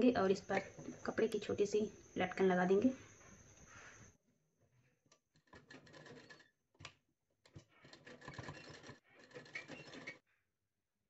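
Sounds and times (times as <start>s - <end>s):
sewing machine clicks: 5.4s - 6.4s, 7.5s - 10.2s
sewing machine stitching: 5.4s - 6.5s, 7.5s - 10.2s.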